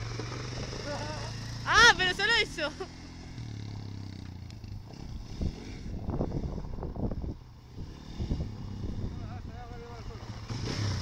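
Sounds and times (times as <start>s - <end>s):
tyres churning dirt and gravel: 0.0s - 6.2s
quad bike engine running: 0.0s - 11.0s.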